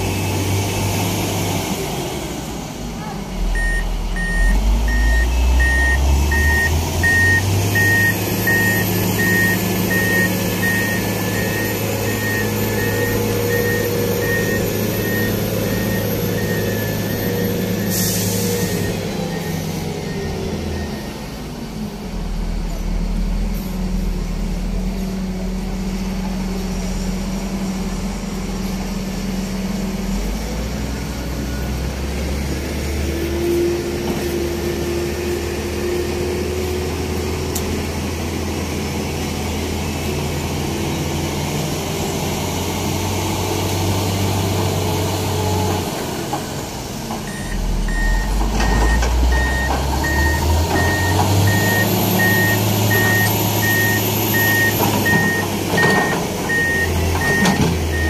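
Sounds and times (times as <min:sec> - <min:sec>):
diesel crane engine running: 0:00.0 - 0:58.0
beeping alarm: 0:03.6 - 0:21.2, 0:47.3 - 0:58.0.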